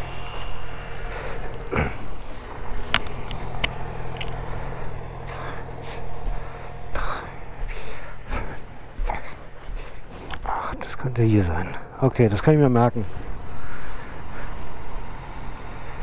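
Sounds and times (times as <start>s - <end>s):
motorcycle engine running: 0.0s - 12.3s.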